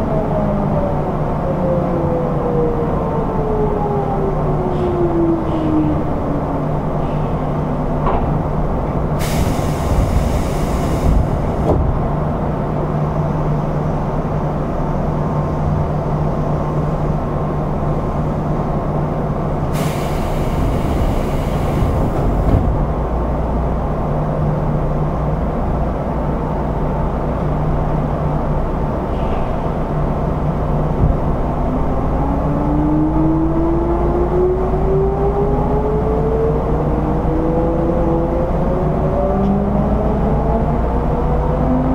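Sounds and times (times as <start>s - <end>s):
electric train rumble and hum: 0.0s - 41.9s
air hiss bursts: 9.2s - 11.6s, 19.7s - 22.2s.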